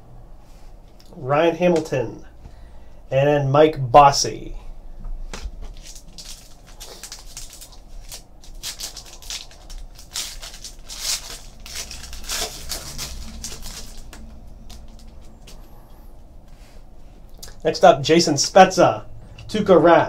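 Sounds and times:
foil wrapper crackling: 0:05.6 - 0:15.6.

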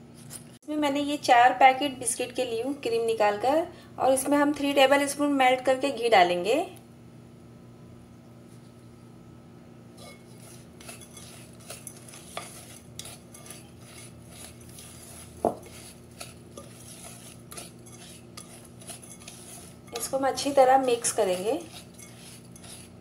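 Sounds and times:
spatula scraping crumbs in bowl: 0:10.0 - 0:23.0.

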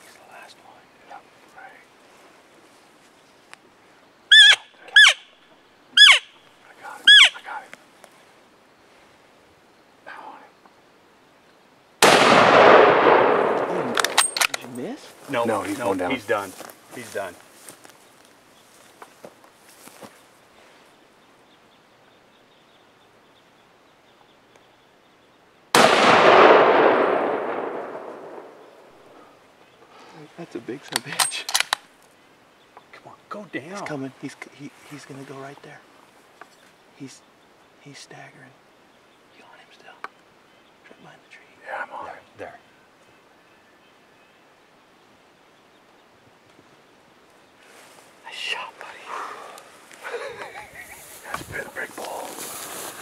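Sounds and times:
elk mews: 0:04.3 - 0:05.2, 0:06.0 - 0:06.2, 0:07.0 - 0:07.6
rifle shot with echo: 0:12.0 - 0:14.5, 0:25.7 - 0:28.9.

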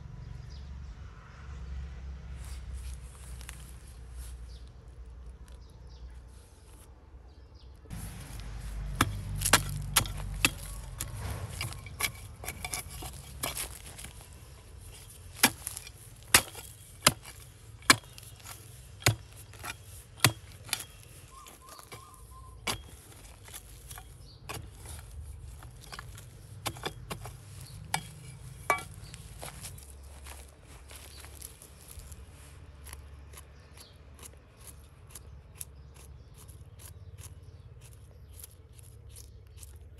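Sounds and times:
metal blade chopping into dry soil: 0:07.9 - 0:39.9.

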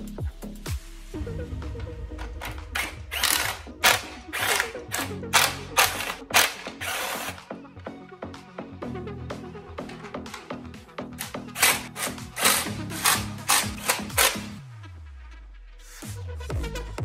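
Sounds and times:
faint music: 0:00.0 - 0:17.0
impact driver hammering screws: 0:02.5 - 0:07.4, 0:11.2 - 0:14.6.

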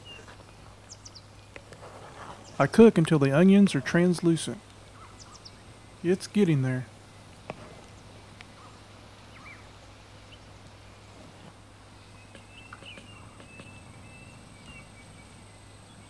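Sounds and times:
low steady hum: 0:00.0 - 0:16.0
bird chirps and calls: 0:04.8 - 0:06.4, 0:07.9 - 0:10.5, 0:12.0 - 0:16.0.

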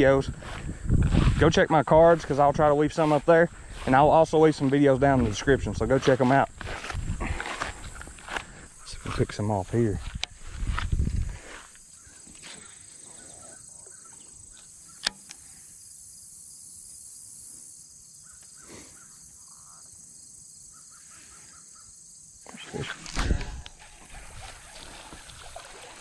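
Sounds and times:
high insect hum: 0:00.0 - 0:26.0
sharp click: 0:15.0 - 0:15.4.

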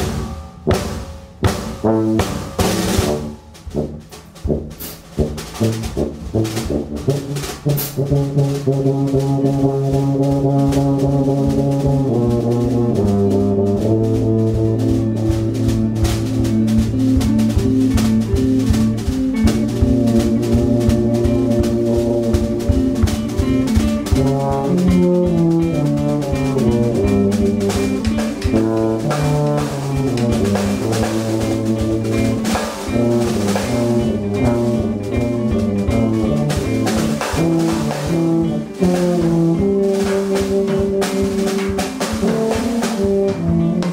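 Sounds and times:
busy drumming: 0:00.0 - 0:43.9
tuba low notes: 0:00.0 - 0:43.9
electric guitar: 0:09.4 - 0:43.9
tenor saxophone: 0:19.6 - 0:43.9.

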